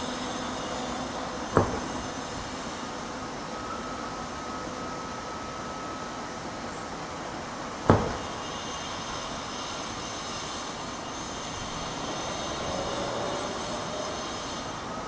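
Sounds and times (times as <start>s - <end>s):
diesel locomotive engine droning: 0.0s - 15.0s
sharp knock: 1.6s - 2.1s, 7.9s - 8.3s.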